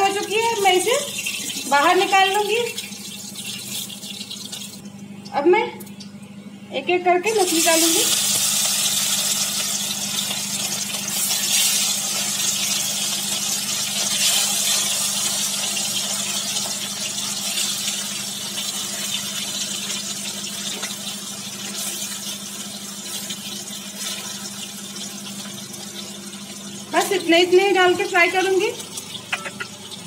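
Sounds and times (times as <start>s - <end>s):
fish sizzling in hot oil: 0.0s - 4.9s, 7.5s - 30.0s.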